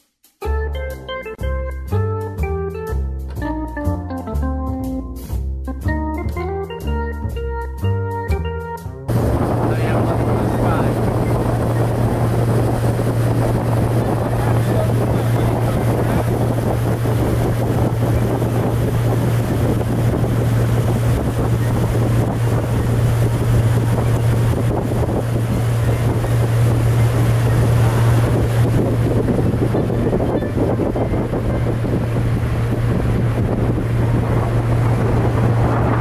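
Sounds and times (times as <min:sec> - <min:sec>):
motorboat engine drone: 0:09.1 - 0:36.0
water rushing: 0:09.1 - 0:36.0
wind on microphone: 0:09.1 - 0:36.0.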